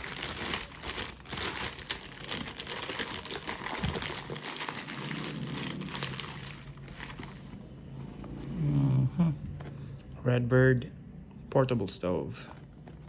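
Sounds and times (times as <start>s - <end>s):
plastic bags crinkling: 0.0s - 8.0s.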